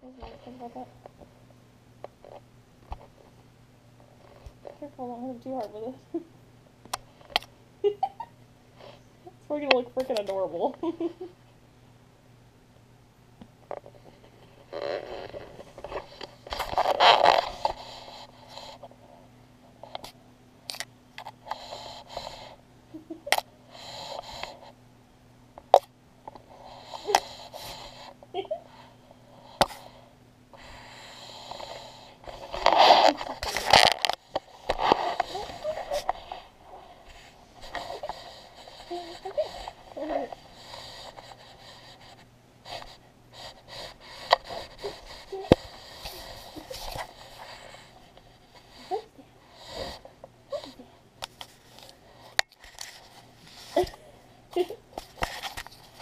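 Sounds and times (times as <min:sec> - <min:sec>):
kitten sniffing and breathing: 0:15.0 - 0:20.0, 0:21.2 - 0:22.7, 0:23.6 - 0:24.8, 0:26.4 - 0:54.4
fur rubbing on camera housing: 0:32.3 - 0:49.0.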